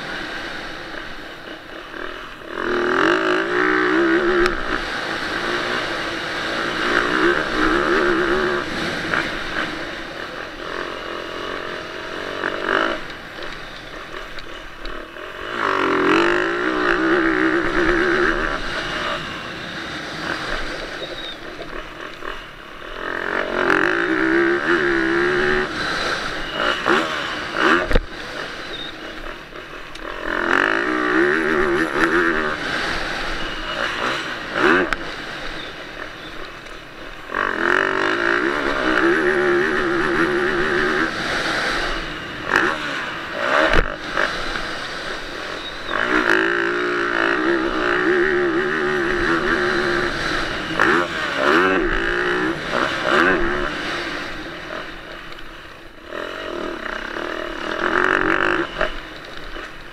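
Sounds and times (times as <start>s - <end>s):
motocross engine revving: 0.0s - 59.9s.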